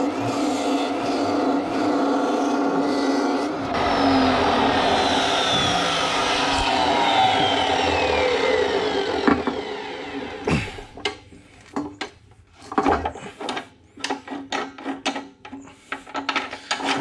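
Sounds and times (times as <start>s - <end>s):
chop saw spinning down: 0.1s - 11.0s.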